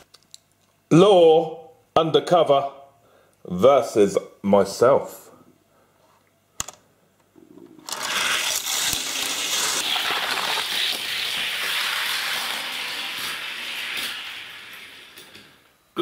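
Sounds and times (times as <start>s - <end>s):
toy cars rattling down plastic track: 7.8s - 15.6s.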